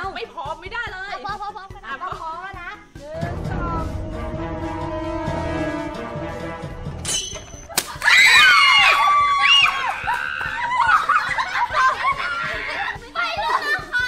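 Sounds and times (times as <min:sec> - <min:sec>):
suspense music: 0:03.0 - 0:07.8
water balloon bursting: 0:07.5 - 0:08.4
children shrieking and laughing: 0:07.7 - 0:14.0.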